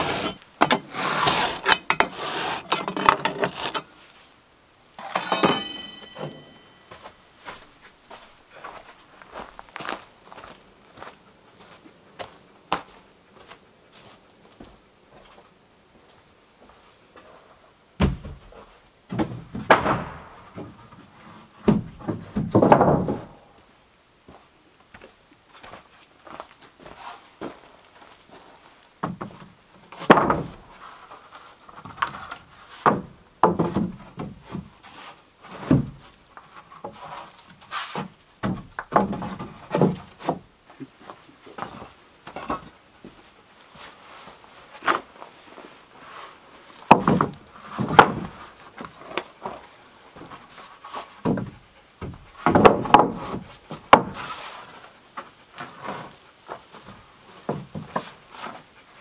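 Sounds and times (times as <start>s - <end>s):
boards scraping together: 0.0s - 4.0s, 52.4s - 54.9s.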